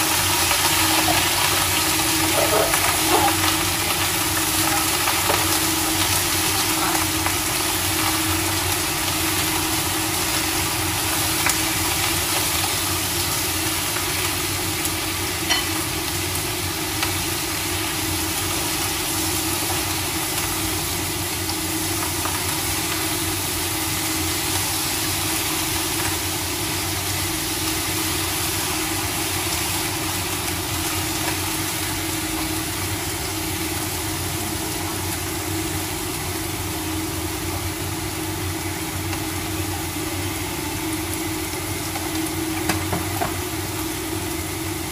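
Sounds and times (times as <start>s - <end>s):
greens sizzling in a wok: 0.0s - 44.9s
steady mechanical hum: 0.0s - 44.9s.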